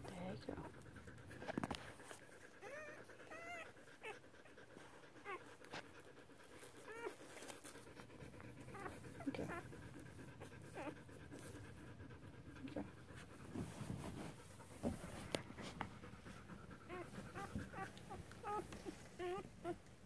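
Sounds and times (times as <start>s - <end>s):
dog panting: 0.0s - 20.0s
puppies squeaking: 2.6s - 4.2s, 16.9s - 19.8s.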